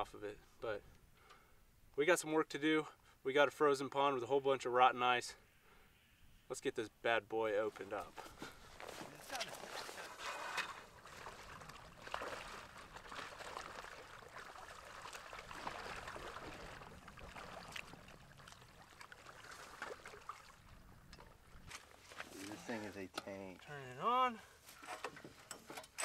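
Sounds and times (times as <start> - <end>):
pond water sloshing: 7.9 - 23.7.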